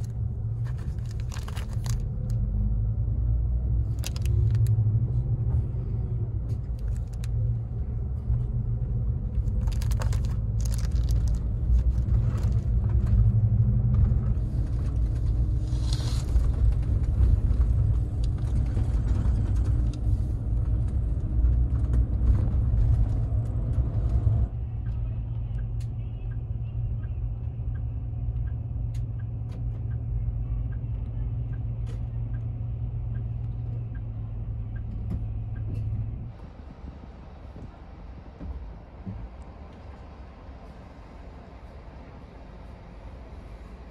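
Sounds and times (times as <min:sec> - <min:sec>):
plastic packet crinkling: 0:00.0 - 0:02.4, 0:03.9 - 0:04.8, 0:06.7 - 0:07.4, 0:09.4 - 0:12.7
bus engine idling: 0:00.0 - 0:13.2
bus engine and road rumble: 0:00.0 - 0:43.9.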